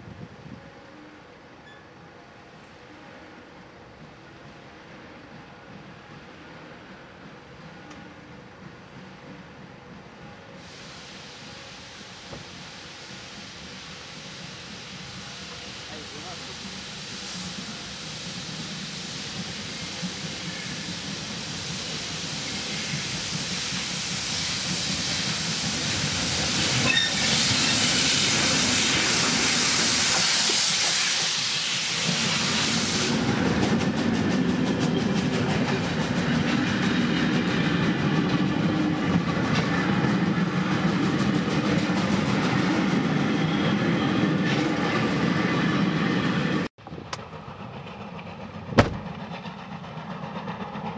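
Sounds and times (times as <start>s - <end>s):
steam locomotive hissing: 2.5s - 50.9s
train wagons rumbling and clattering: 19.0s - 50.9s.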